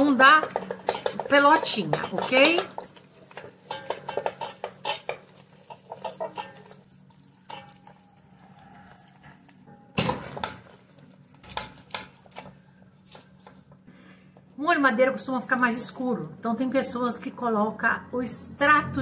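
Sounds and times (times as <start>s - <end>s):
wooden spoon knocking in pan: 0.0s - 6.8s
pots clinking: 0.0s - 13.8s.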